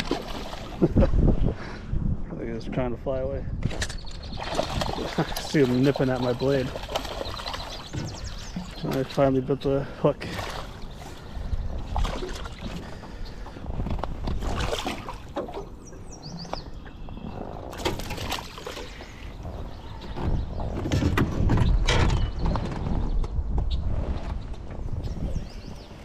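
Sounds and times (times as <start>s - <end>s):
fish splashing in water: 0.0s - 0.8s, 4.4s - 9.0s, 14.4s - 15.7s, 17.7s - 19.0s.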